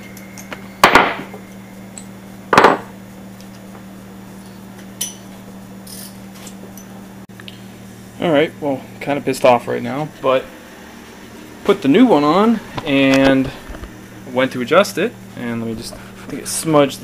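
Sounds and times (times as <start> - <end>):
steady low hum: 0.0 - 17.0
tool knocks: 2.5 - 2.9.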